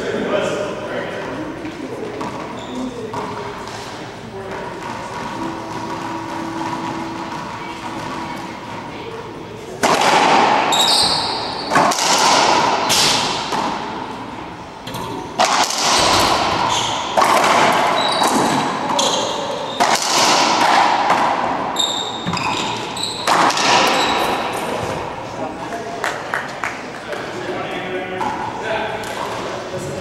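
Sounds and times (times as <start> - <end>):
sneaker squeaks on hardwood: 2.2 - 3.8, 10.7 - 11.9, 16.0 - 20.0, 21.7 - 24.5
ball cracking off racquets and walls: 9.8 - 13.9, 15.0 - 19.2, 22.3 - 25.1.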